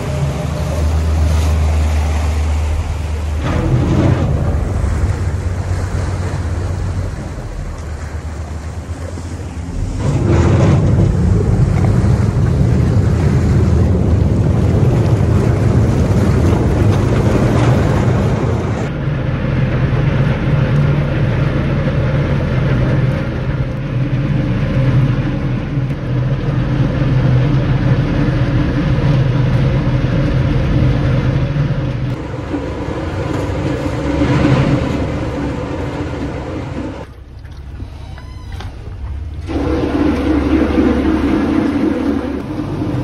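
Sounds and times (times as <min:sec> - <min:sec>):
boat diesel engine running: 0:00.0 - 0:43.0
propeller wash churning water: 0:00.0 - 0:43.0.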